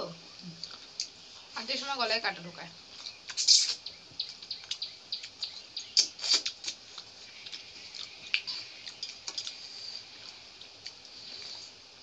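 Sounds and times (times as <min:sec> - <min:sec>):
people eating with hands: 0:00.0 - 0:12.0
chewing and lip smacks: 0:00.4 - 0:01.2, 0:02.9 - 0:11.8.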